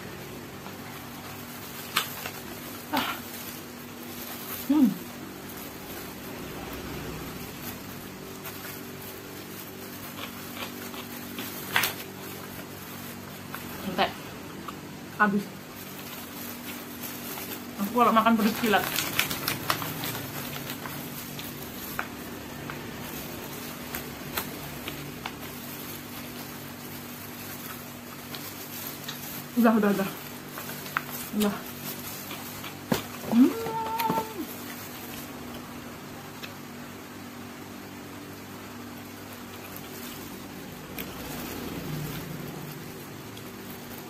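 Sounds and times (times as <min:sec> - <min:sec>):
low mechanical hum: 0:00.0 - 0:44.0
plastic glove crackling: 0:00.3 - 0:35.7, 0:38.8 - 0:44.0
person chewing food: 0:09.4 - 0:12.7, 0:32.0 - 0:33.2.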